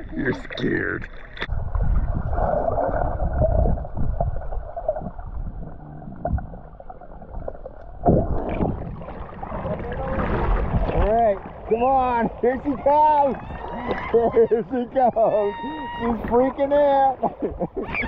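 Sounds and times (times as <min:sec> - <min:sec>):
underwater river rumble and gurgle: 0:00.0 - 0:18.0
river current rushing and splashing: 0:08.0 - 0:15.4.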